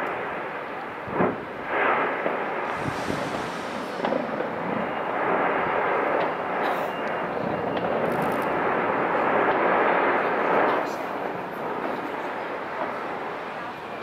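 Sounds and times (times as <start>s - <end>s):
firework bangs and crackles: 0.0s - 14.0s
dense wash of noise: 2.5s - 7.4s.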